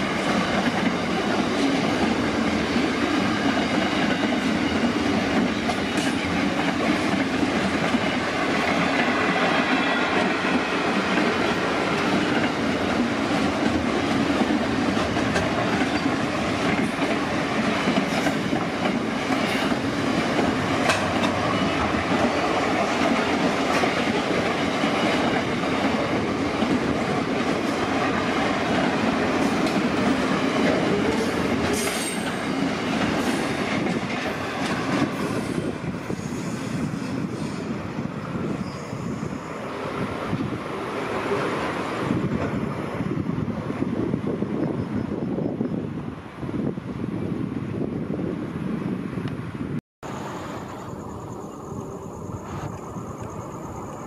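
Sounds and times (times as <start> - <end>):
train wheels rumbling and clattering: 0.0 - 46.0
high wheel squeal: 35.2 - 37.7, 38.4 - 39.8.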